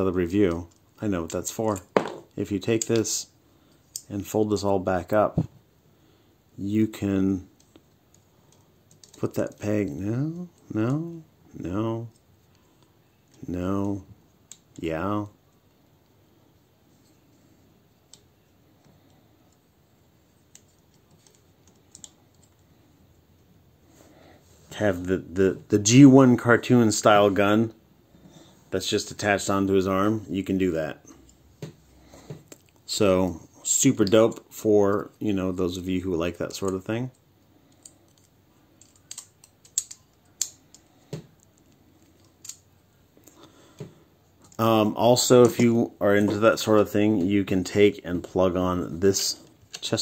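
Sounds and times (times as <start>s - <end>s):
plastic toy parts clicking: 7.6s - 10.7s, 20.5s - 22.6s, 37.7s - 42.6s.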